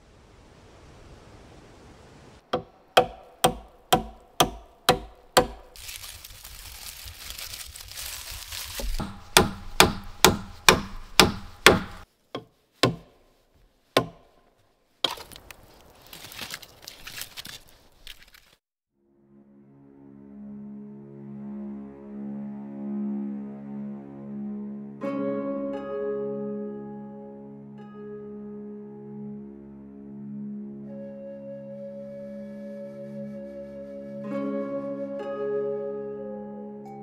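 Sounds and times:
wood fire crackling: 0:02.5 - 0:18.6
chopping wood: 0:02.6 - 0:05.7, 0:08.8 - 0:13.2, 0:14.0 - 0:14.3, 0:15.0 - 0:15.5
aluminium foil crinkling: 0:05.7 - 0:09.0, 0:15.3 - 0:18.6.

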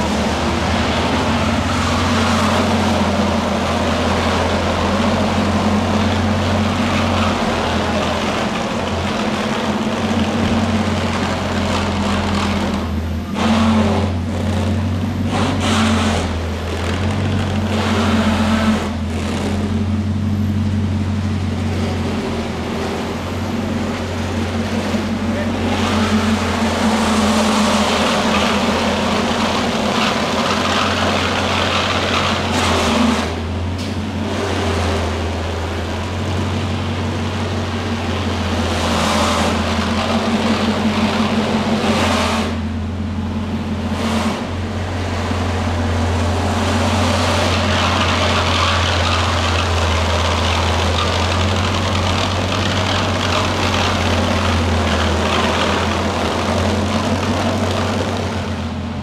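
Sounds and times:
car engine idling: 0:16.2 - 0:59.0.

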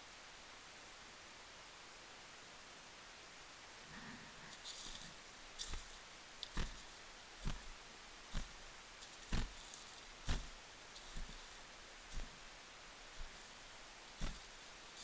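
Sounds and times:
faint rustling: 0:03.9 - 0:15.0
footsteps on dry leaves: 0:04.5 - 0:12.5, 0:14.2 - 0:15.0.

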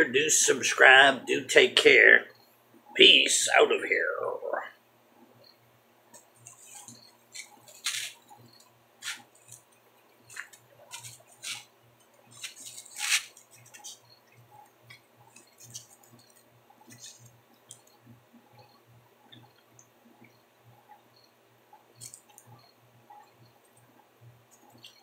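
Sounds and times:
faint small ticks: 0:13.3 - 0:25.0.

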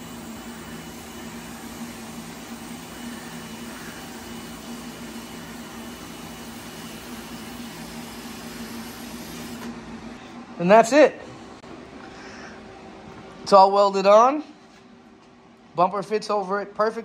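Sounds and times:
arc welding hiss: 0:00.0 - 0:09.7.

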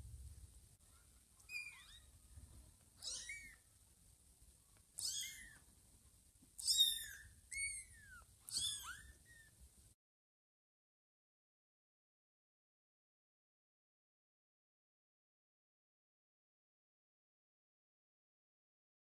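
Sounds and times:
kittens mewing: 0:03.0 - 0:03.6, 0:06.6 - 0:09.6.

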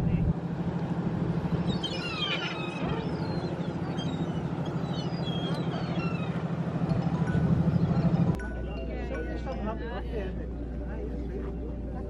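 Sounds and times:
boat engine humming: 0:00.0 - 0:12.0
seagulls crying: 0:01.5 - 0:08.3.

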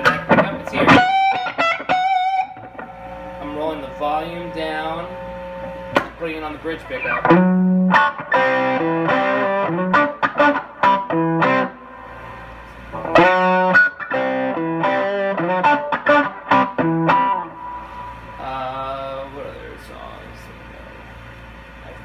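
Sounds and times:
electric guitar lead lick: 0:00.0 - 0:06.2, 0:06.9 - 0:18.9.

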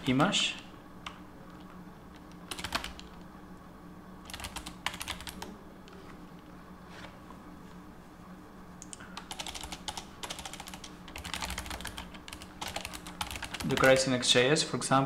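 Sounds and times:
computer keyboard typing: 0:01.0 - 0:03.2, 0:04.2 - 0:05.5, 0:08.8 - 0:14.1.

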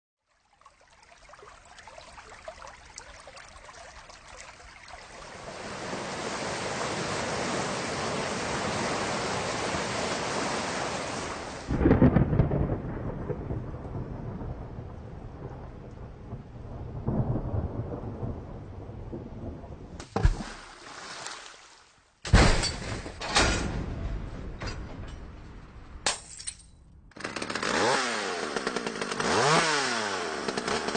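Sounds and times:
steady rain: 0:00.8 - 0:20.0
thunderclap with rolling rumble: 0:11.7 - 0:20.0
loud sharp crash: 0:22.3 - 0:25.6.

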